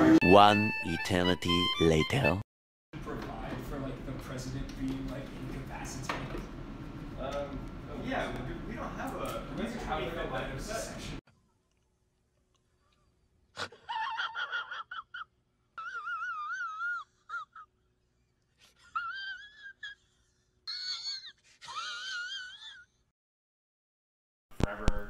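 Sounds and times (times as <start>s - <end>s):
man falsetto squealing: 13.8s - 17.6s, 20.7s - 22.8s.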